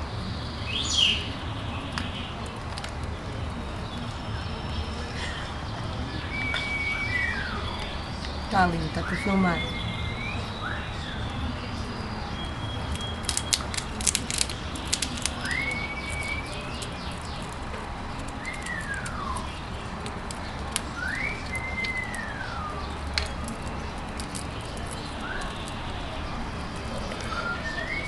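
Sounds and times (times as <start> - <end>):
squirrel gnawing a nut shell: 1.8 - 4.1, 12.3 - 28.0
slow rising and falling whistles: 6.3 - 8.0.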